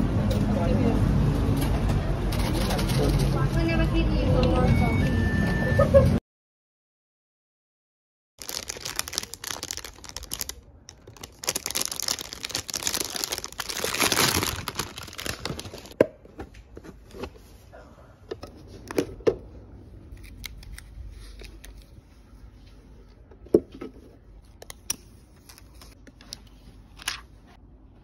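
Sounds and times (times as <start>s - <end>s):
plastic wrapping crinkling and tearing: 8.4s - 16.0s.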